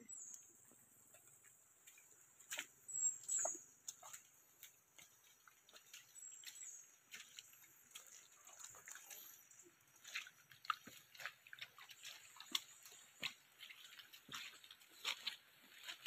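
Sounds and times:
footsteps on leafy dirt trail: 10.0 - 16.0.

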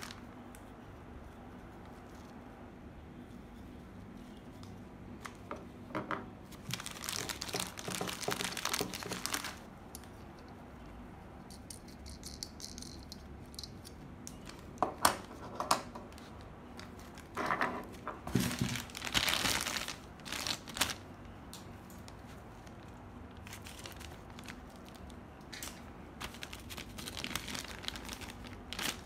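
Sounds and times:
plastic bags crinkling: 0.0 - 0.2, 6.5 - 9.7, 18.2 - 21.3, 21.9 - 29.0.

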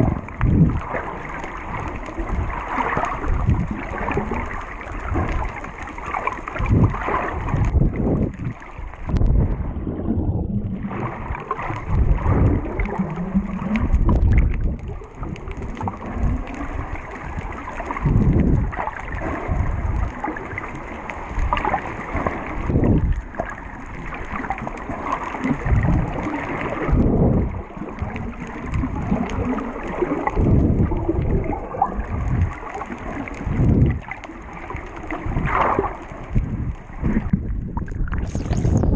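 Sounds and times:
muffled water sloshing: 0.0 - 38.9.

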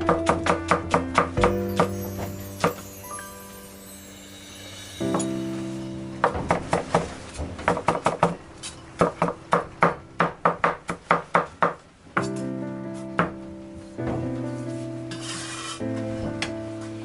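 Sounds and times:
sustained music chord: 1.4 - 7.6.

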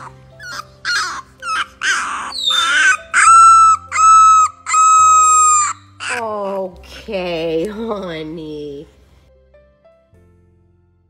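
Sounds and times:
puppy whining and crying: 0.0 - 6.6.

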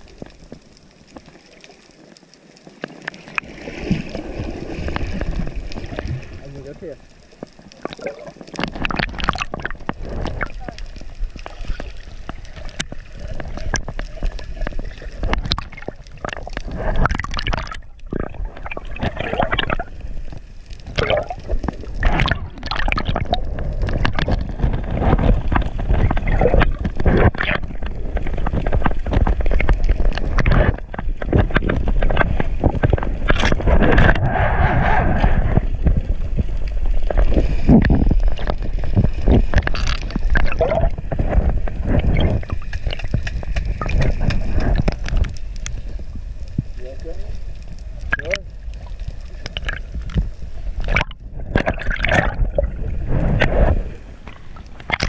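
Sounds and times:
water sloshing and gurgling: 0.0 - 55.0
water splashing: 0.0 - 55.0.

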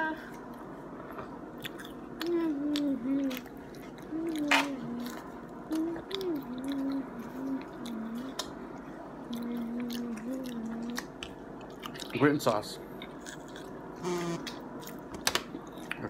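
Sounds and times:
wet chewing and mouth clicks: 0.4 - 12.2
person humming: 2.2 - 3.5, 4.1 - 8.5, 9.3 - 11.1.

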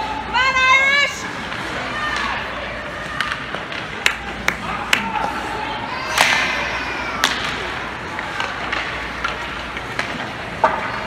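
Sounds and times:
crowd murmur: 1.1 - 11.0
hockey stick and puck cracks: 3.1 - 5.4, 6.0 - 11.0.

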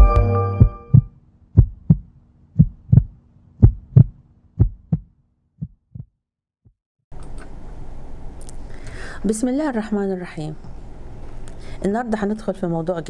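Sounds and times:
heartbeat double thumps: 0.6 - 6.1.

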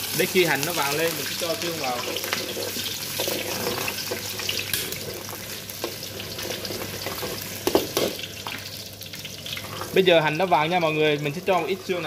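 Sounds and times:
onion sizzling in oil: 0.0 - 12.0
metal ladle scraping wok: 2.0 - 5.3.

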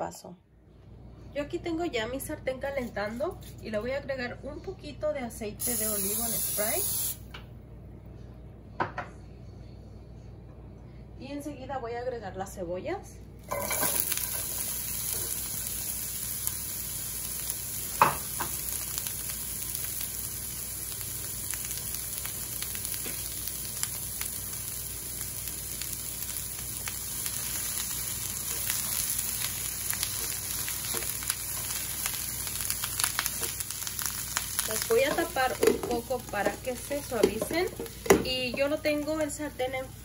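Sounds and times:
onions sizzling in a pan: 5.6 - 7.2, 13.4 - 40.0
wooden spoon stirring onions: 27.4 - 39.5.

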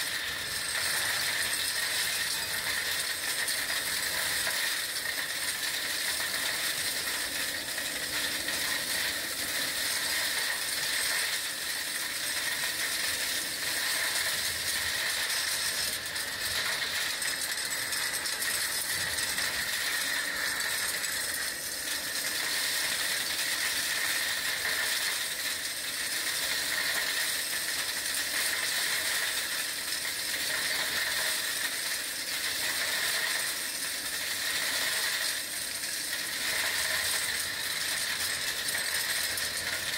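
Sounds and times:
stones rattling in hose: 0.0 - 39.9.

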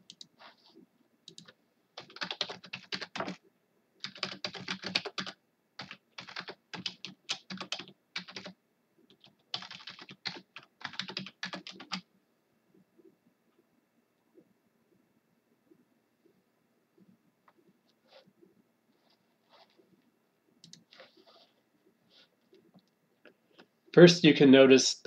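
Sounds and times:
typing on computer keyboard: 0.0 - 0.3, 1.2 - 3.4, 4.0 - 12.0, 20.6 - 20.9.

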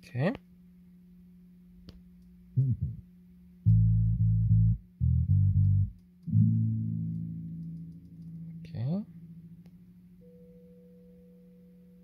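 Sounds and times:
faint low hum: 0.0 - 12.0
bass notes through car speakers: 2.6 - 3.0, 3.7 - 9.7.

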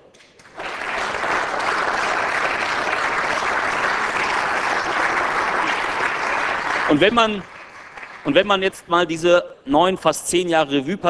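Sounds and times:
crowd applauding: 0.4 - 9.2.

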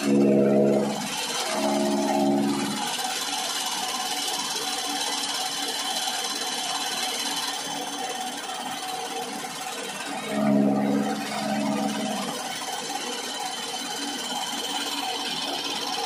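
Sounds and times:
deeper hum: 0.0 - 2.8, 10.2 - 12.4.

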